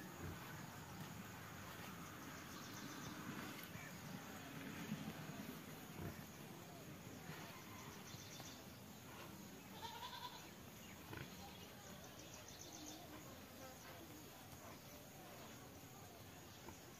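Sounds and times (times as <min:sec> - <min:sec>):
quiet animal calls: 0:09.1 - 0:11.8.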